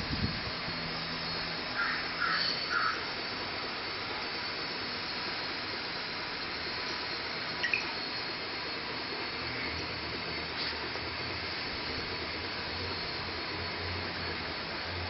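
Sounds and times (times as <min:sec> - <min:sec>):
machine whirring hiss: 0:00.0 - 0:15.0.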